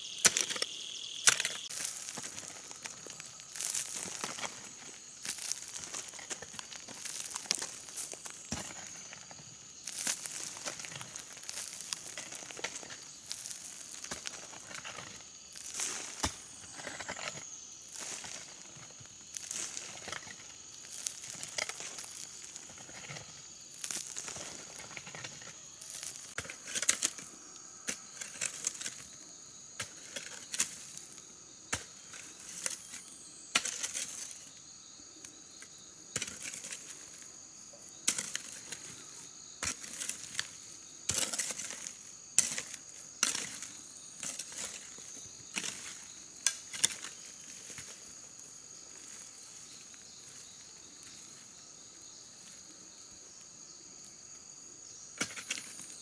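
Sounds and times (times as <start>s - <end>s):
high-pitched insect drone: 0.0s - 26.4s
dry forest material crackling: 0.0s - 29.3s, 30.2s - 54.3s.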